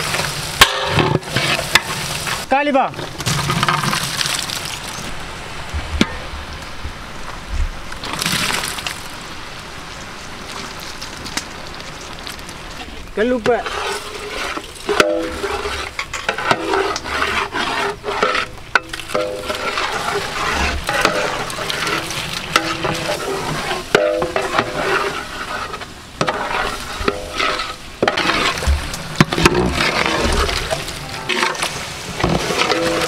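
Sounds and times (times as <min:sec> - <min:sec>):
food sizzling in oil: 0:00.0 - 0:02.5, 0:13.6 - 0:33.0
ladles scraping and knocking pots: 0:00.0 - 0:04.9, 0:13.4 - 0:33.0.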